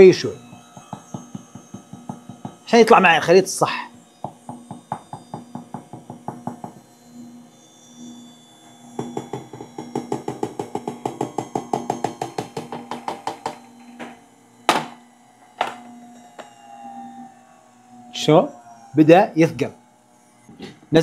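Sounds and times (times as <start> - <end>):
stand mixer humming: 0.0 - 21.0.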